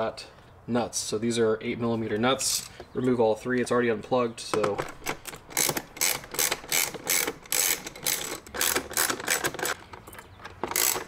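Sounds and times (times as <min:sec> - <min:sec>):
ratchet wrench clicking: 0:05.3 - 0:09.8, 0:10.6 - 0:11.0.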